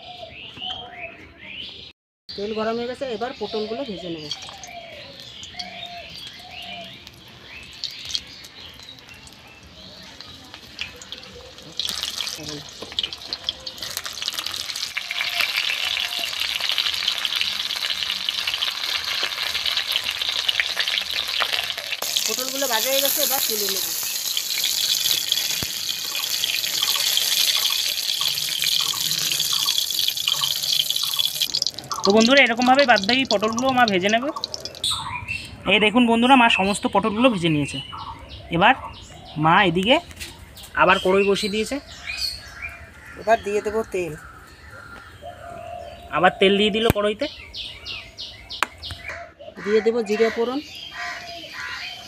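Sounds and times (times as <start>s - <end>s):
birds chirping: 0.0s - 52.0s
food sizzling in oil: 4.2s - 35.1s.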